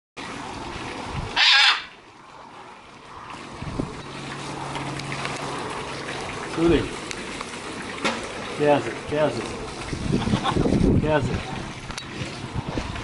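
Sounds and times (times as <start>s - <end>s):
macaw squawking: 1.4s - 1.9s.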